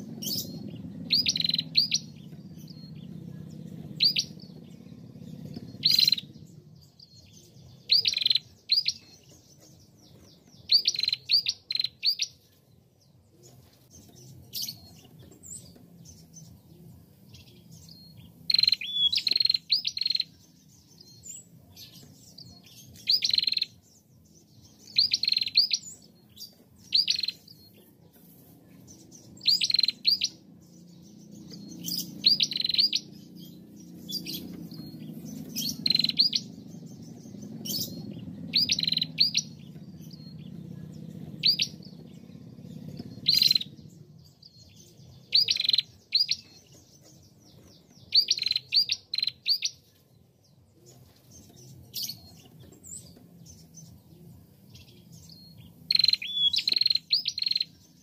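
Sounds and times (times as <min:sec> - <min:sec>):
bird sharp high chirps: 0:00.0 - 0:12.5, 0:17.2 - 0:27.8, 0:28.6 - 0:50.0, 0:54.7 - 0:58.0.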